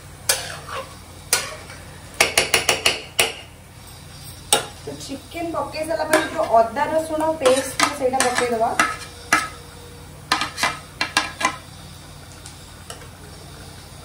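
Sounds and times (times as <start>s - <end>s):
food sizzling: 0.0s - 14.0s
spoon stirring in pot: 7.2s - 9.6s.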